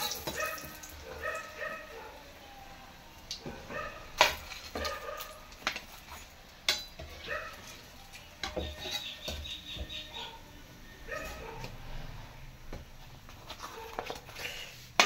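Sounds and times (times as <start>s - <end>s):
oil sizzling: 0.0s - 1.5s
metal spoon clinking on pan: 4.2s - 9.6s.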